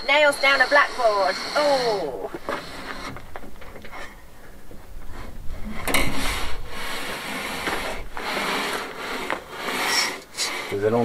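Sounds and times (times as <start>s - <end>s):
panel frame scraping car boot: 5.7s - 11.0s.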